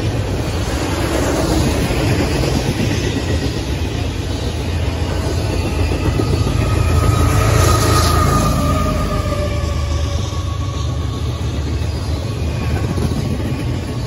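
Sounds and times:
freight train rumble: 0.0s - 14.0s
locomotive passing: 0.0s - 14.0s
thin whine: 3.2s - 14.0s.

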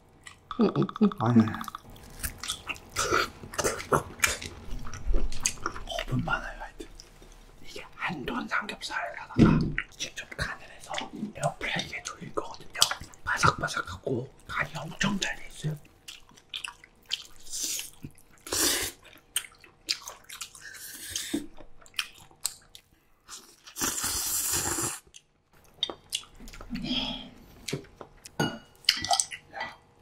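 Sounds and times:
wet chewing and smacking: 0.2s - 6.2s, 15.7s - 23.8s, 25.0s - 26.8s, 27.6s - 29.5s.

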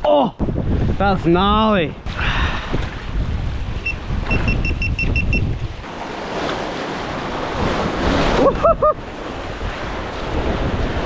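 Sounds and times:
wind on microphone: 0.3s - 11.0s
short high electronic beeps: 3.8s - 5.4s
surf breaking over rocks: 5.8s - 11.0s.

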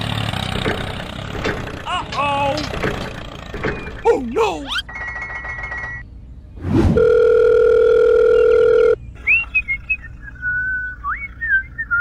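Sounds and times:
faint whistled chirps: 9.2s - 12.0s.

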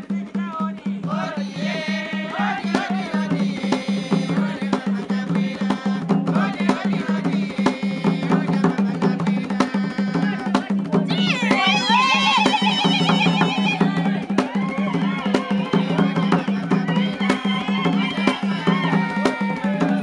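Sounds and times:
drum beating quick rhythm: 0.0s - 20.0s
voices singing: 0.0s - 20.0s.

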